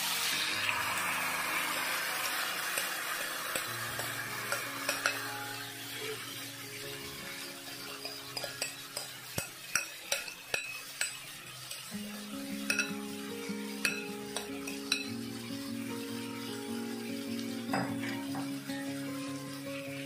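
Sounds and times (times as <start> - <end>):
oil sizzling: 0.0 - 20.0
soft background music: 0.0 - 20.0
metal spoon clicking and scraping: 2.7 - 5.3, 8.0 - 11.9, 12.7 - 13.0, 13.8 - 15.1.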